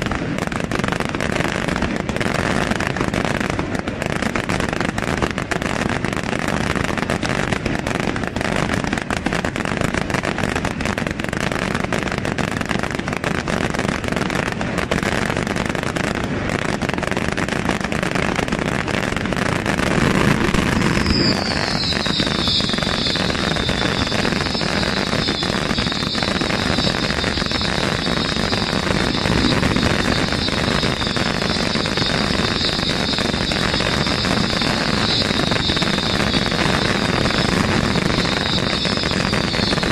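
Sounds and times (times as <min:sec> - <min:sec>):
firework bursts and crackling: 0:00.0 - 0:39.9
high rocket whistle: 0:19.6 - 0:39.9.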